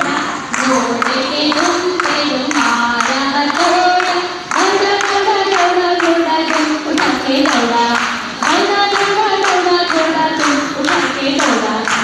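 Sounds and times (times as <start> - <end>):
hand claps: 0.0 - 12.0
women singing together: 0.0 - 12.0.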